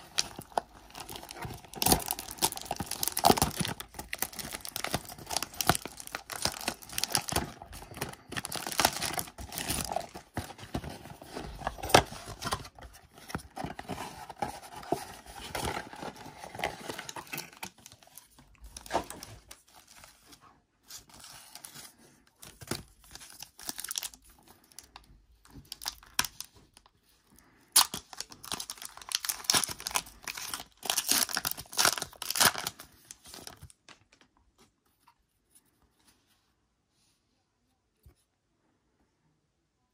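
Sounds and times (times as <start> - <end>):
plastic shrink wrap crinkling: 0.0 - 20.0, 22.4 - 26.6, 27.7 - 34.2.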